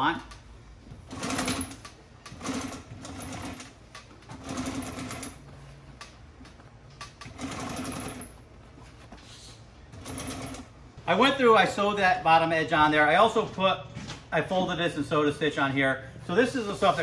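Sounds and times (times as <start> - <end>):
sewing machine stitching: 1.0 - 3.7, 4.3 - 5.4, 7.2 - 8.2, 10.0 - 10.7.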